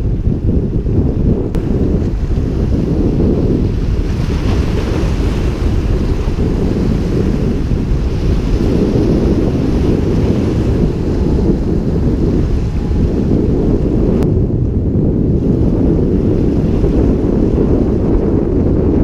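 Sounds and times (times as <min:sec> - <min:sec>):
wind buffeting microphone: 0:00.0 - 0:19.0
surf washing against rocks: 0:01.5 - 0:14.2.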